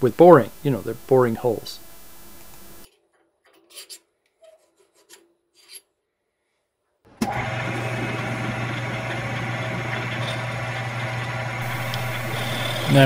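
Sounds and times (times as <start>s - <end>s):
lathe running with low hum: 7.2s - 13.0s.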